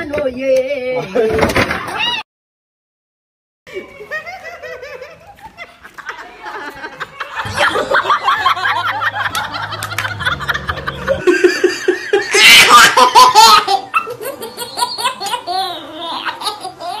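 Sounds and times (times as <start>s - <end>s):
baby laughing: 7.4s - 17.0s.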